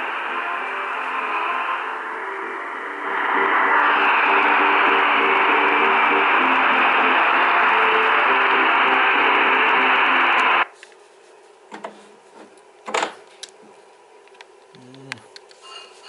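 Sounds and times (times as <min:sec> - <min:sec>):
radio static hiss: 0:00.0 - 0:10.7.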